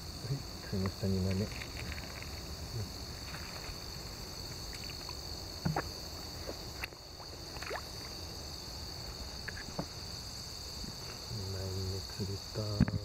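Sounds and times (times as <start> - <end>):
water sloshing and splashing: 1.4 - 8.3.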